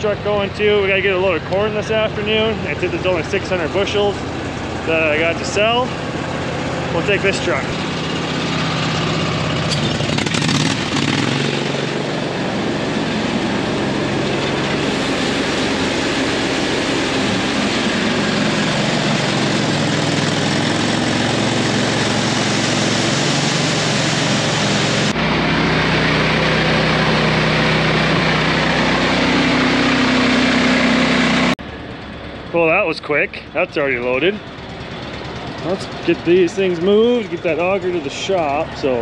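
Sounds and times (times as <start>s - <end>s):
conveyor engine running: 0.0s - 39.0s
grain rushing: 10.3s - 25.1s.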